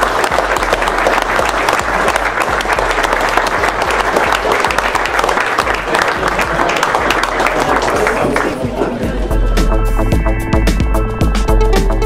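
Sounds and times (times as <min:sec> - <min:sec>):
people applauding: 0:00.0 - 0:09.0.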